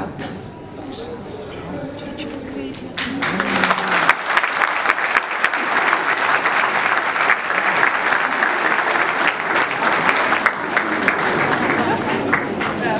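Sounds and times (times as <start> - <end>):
audience applauding: 3.0 - 12.9.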